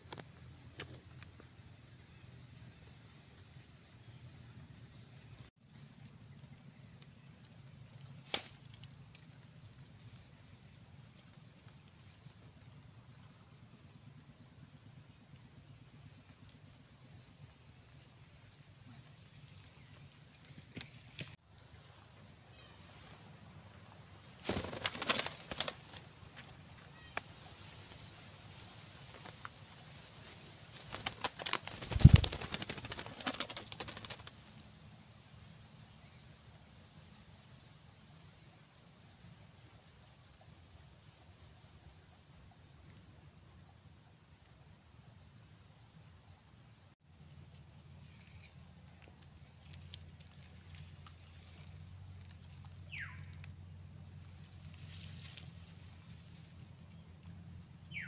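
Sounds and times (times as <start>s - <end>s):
parrots flapping wings: 24.2s - 27.2s, 29.0s - 34.6s.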